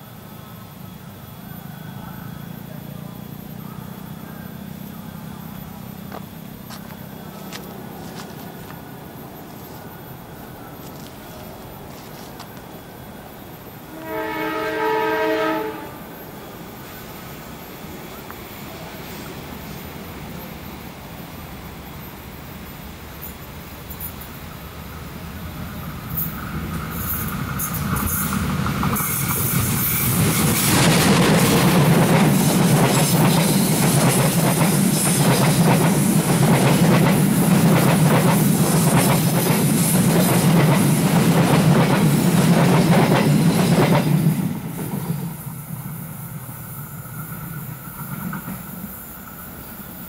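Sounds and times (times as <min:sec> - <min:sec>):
locomotive engine drone: 0:00.0 - 0:39.0
train wheels clickety-clack: 0:23.1 - 0:24.4, 0:25.8 - 0:49.8.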